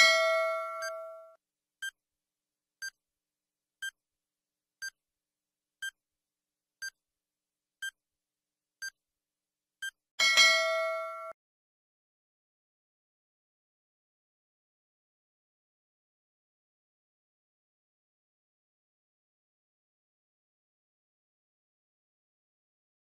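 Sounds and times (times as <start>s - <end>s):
bell-like ding: 0.0s - 1.4s, 10.2s - 11.4s.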